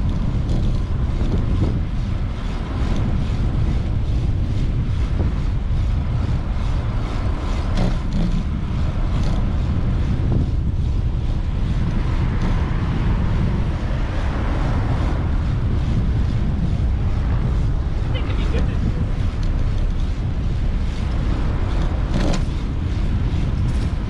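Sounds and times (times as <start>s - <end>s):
street car traffic: 0.0s - 24.0s
wind rumble on microphone: 0.0s - 24.0s
vehicle passing: 11.2s - 24.0s.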